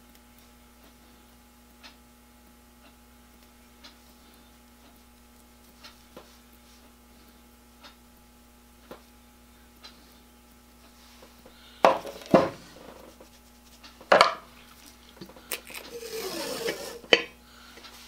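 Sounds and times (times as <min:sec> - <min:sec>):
masking tape ripping off roll: 0:15.5 - 0:17.0.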